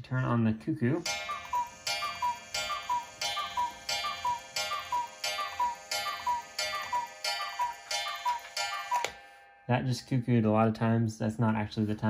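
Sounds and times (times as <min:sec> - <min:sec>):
cuckoo clock click: 0:01.0 - 0:09.2
cuckoo clock calling: 0:01.0 - 0:09.6.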